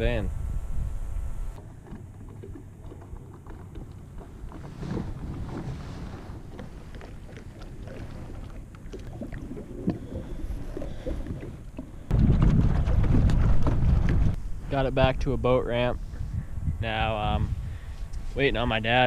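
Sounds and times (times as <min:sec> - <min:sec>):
outboard motor humming: 0:00.0 - 0:14.8
wind rumble on microphone: 0:00.0 - 0:19.0.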